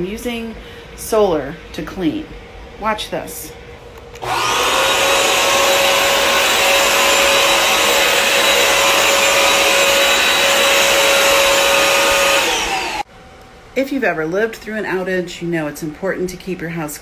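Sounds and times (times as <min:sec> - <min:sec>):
floor cleaner motor whine: 0:04.2 - 0:13.1.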